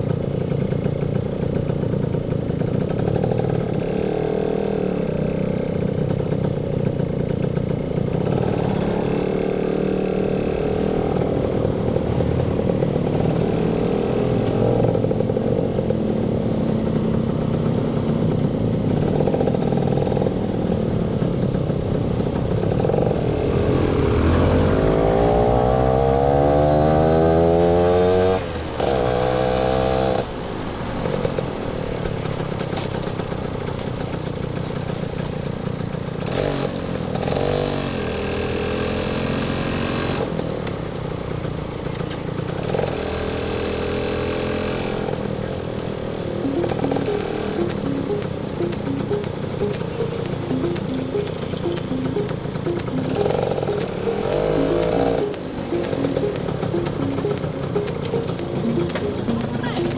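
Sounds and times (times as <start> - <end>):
motorcycle engine revving: 0.0 - 30.2.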